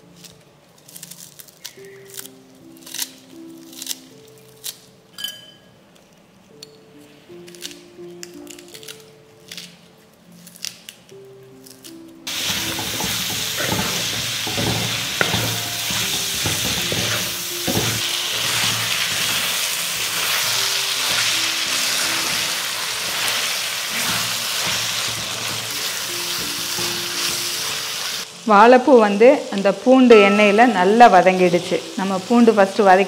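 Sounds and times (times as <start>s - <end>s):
food sizzling in oil: 12.3s - 33.0s.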